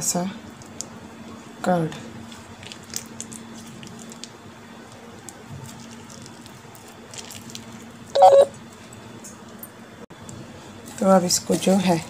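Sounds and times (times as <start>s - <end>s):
loud high-pitched sound: 8.2s - 8.5s.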